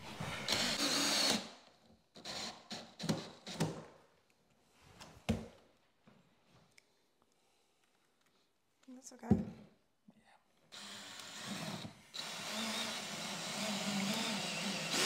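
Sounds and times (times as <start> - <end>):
cordless drill driving screw: 0.4 - 1.5, 2.2 - 3.6, 10.7 - 15.0.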